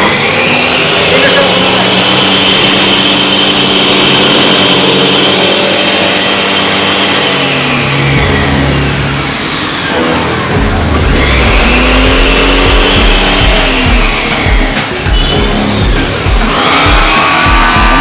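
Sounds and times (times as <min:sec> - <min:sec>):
machine motor whining: 0:00.0 - 0:18.0
deep rumble: 0:08.0 - 0:18.0.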